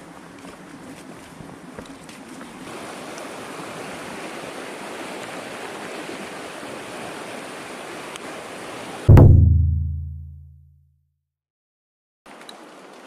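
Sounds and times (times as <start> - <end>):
stream rushing over rocks: 2.6 - 9.1, 12.3 - 13.0.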